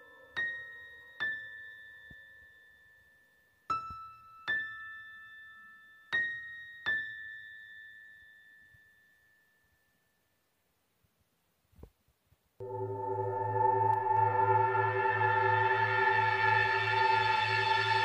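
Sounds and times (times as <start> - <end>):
bell-like keyboard notes: 12.6 - 18.0.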